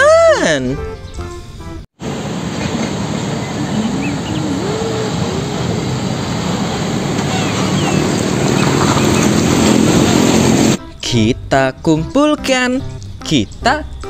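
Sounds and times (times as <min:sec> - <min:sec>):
truck driving past: 0:02.0 - 0:10.8.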